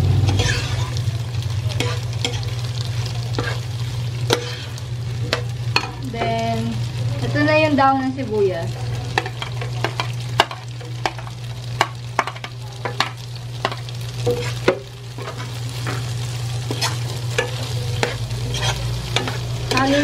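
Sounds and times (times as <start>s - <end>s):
food sizzling: 0.0s - 20.0s
metal spoon scraping frying pan: 0.2s - 1.0s, 1.7s - 2.6s, 3.3s - 6.4s, 9.2s - 20.0s.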